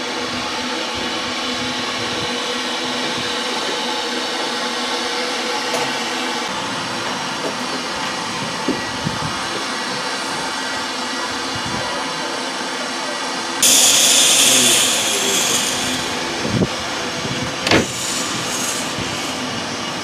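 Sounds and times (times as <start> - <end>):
loud mechanical hiss: 13.6 - 16.8, 17.6 - 20.0.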